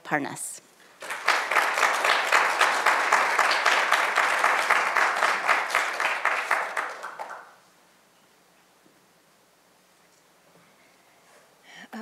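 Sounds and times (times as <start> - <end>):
audience applauding: 1.0 - 7.6.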